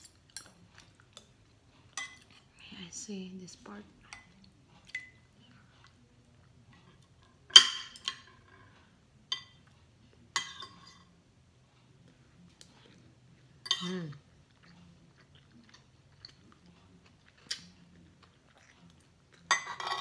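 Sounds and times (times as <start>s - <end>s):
cutlery clinking on dishes: 1.9s - 2.4s, 6.8s - 11.1s, 13.6s - 14.2s, 19.4s - 20.0s.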